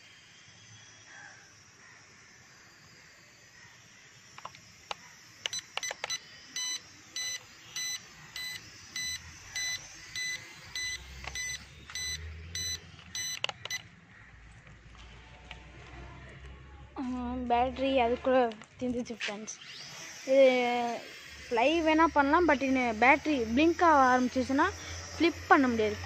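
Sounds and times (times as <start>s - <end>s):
small motors whining: 0.0s - 26.0s
sharp clicks: 4.3s - 14.8s, 18.4s - 19.4s
short electronic beeps: 5.5s - 13.9s.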